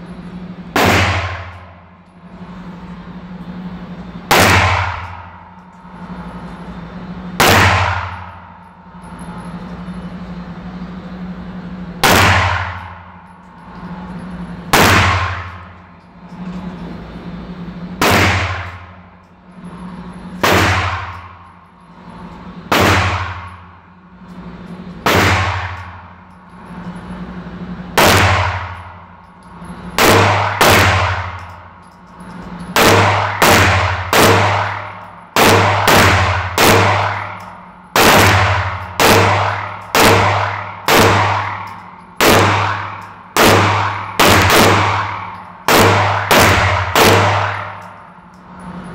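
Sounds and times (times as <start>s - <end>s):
pistol shots echoing indoors: 0.7s - 2.2s, 4.3s - 5.6s, 7.3s - 8.7s, 12.0s - 13.4s, 14.7s - 15.7s, 18.0s - 19.0s, 20.4s - 21.5s, 22.7s - 23.7s, 25.0s - 26.1s, 28.0s - 29.2s, 29.9s - 32.0s, 32.6s - 48.2s.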